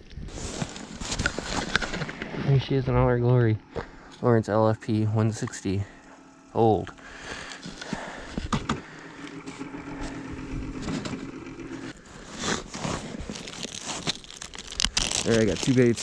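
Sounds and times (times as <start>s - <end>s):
depth finder humming: 0.0s - 13.8s
plastic bag crinkling: 0.3s - 2.2s, 12.0s - 16.0s.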